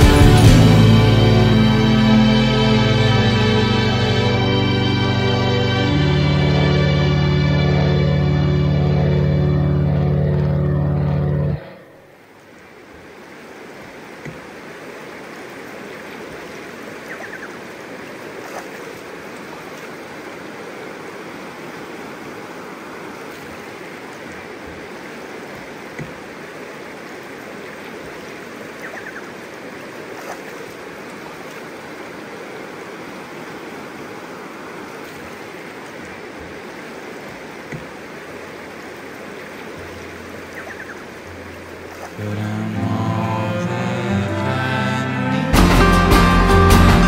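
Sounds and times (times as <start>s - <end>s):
low sustained music chord: 0.0s - 11.8s, 41.4s - 47.0s
river rushing over stones: 11.6s - 44.4s
small water splashes: 12.2s - 42.3s.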